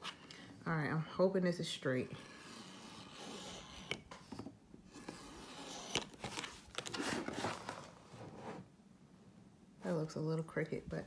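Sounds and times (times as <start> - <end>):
craft knife scratching along ruler: 2.0 - 4.1, 4.9 - 6.0
rustling of handled notebook: 5.6 - 8.5.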